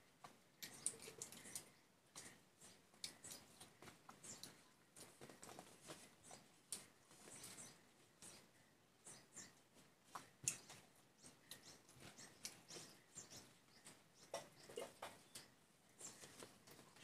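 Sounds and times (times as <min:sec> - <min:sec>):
wet eating clicks and smacks: 0:00.6 - 0:02.4, 0:03.0 - 0:03.7, 0:10.1 - 0:12.8.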